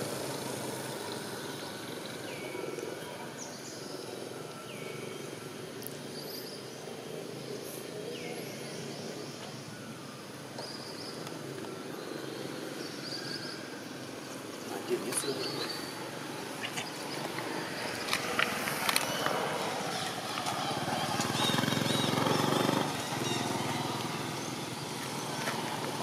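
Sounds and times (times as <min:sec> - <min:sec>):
bird chirps: 0:10.6 - 0:25.6
bird calls: 0:12.1 - 0:26.0.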